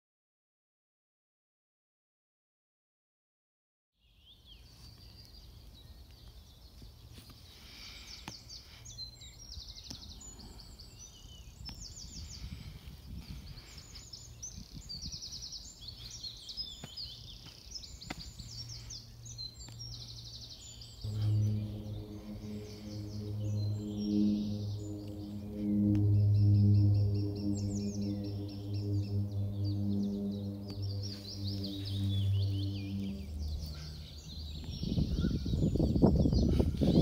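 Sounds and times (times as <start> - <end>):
birds trilling: 7.5 - 37.0
music with low drone: 15.2 - 37.0
low steady hum: 15.6 - 36.8.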